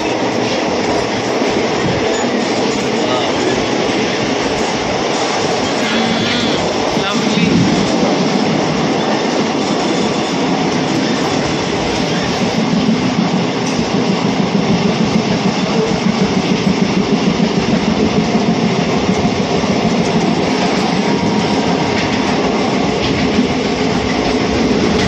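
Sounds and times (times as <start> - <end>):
train wheels rumbling and rattling: 0.0 - 25.0.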